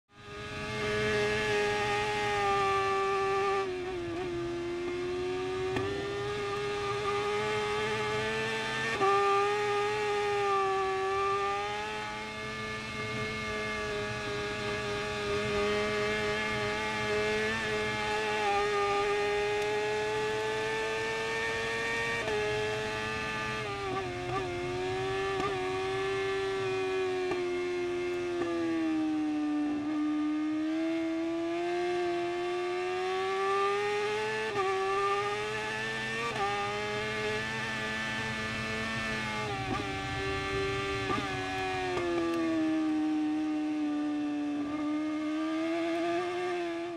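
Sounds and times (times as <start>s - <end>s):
motorcycle engine at high revs: 0.1s - 46.9s.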